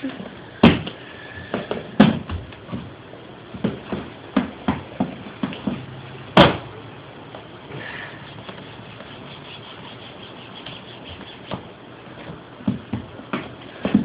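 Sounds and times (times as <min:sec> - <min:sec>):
shoes knocking on hardwood floor: 0:00.6 - 0:06.6, 0:11.1 - 0:14.0
shoes knocking on wooden box: 0:01.5 - 0:06.6, 0:11.1 - 0:14.0.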